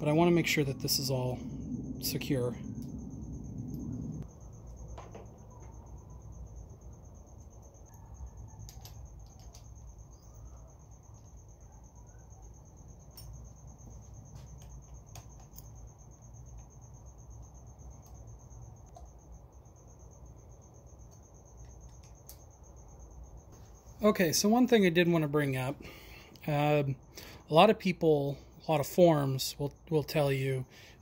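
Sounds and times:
low hum: 0.0 - 24.6.

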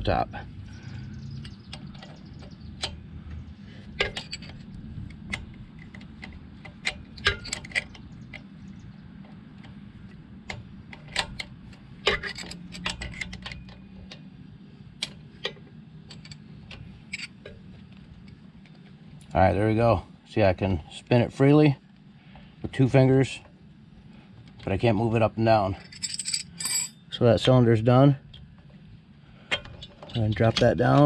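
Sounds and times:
steady low hum: 0.0 - 31.0
wrenches clicking on metal: 29.5 - 31.0.

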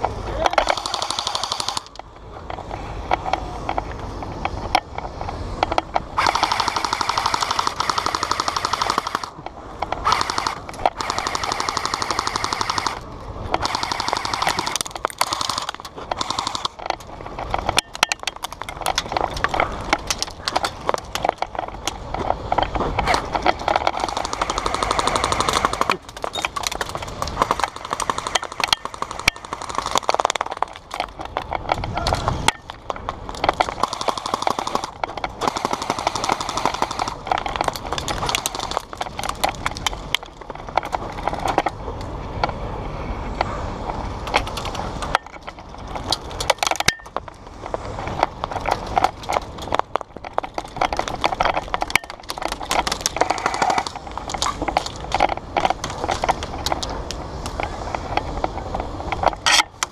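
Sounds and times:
airsoft rifle bursts: 0.5 - 1.9, 6.2 - 9.4, 10.0 - 13.0, 13.6 - 16.8, 33.8 - 37.3.

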